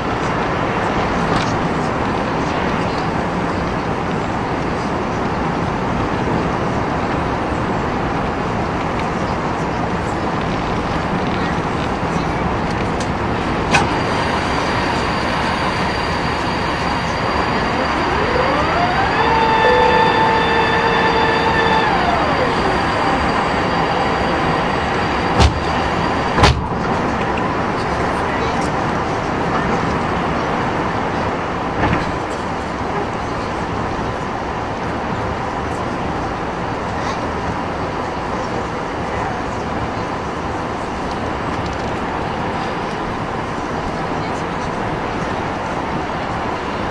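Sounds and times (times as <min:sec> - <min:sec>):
airplane cabin roar: 0:00.0 - 0:46.9
rising whine: 0:13.1 - 0:27.2.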